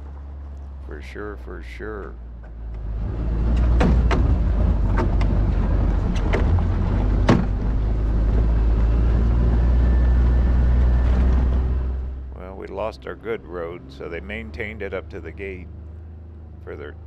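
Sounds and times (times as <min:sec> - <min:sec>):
vehicle engine rumbling: 0:00.0 - 0:17.0
vehicle jolting knocks: 0:03.3 - 0:07.8.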